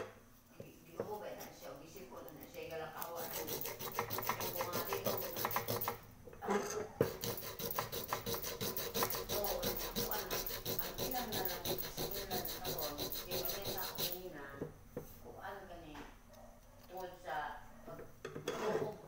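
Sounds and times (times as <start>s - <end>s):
sandpaper rasping on metal pot: 3.0s - 6.0s, 7.0s - 14.3s.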